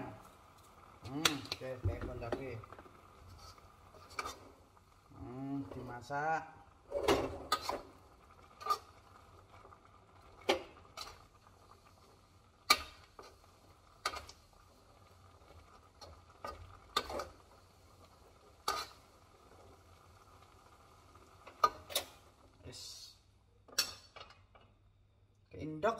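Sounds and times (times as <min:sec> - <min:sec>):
spatula scraping a wok: 0:03.2 - 0:04.6, 0:06.9 - 0:07.9, 0:18.6 - 0:19.0.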